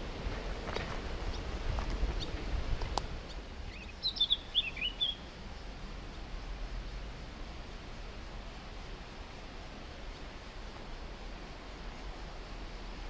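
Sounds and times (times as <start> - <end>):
small bird chirping: 3.2 - 5.7.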